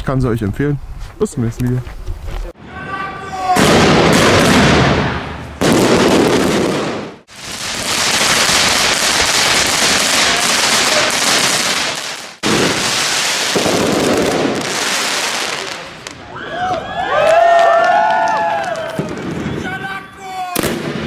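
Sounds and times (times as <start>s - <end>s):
fireworks fizzing and crackling: 3.4s - 16.3s, 18.0s - 19.8s.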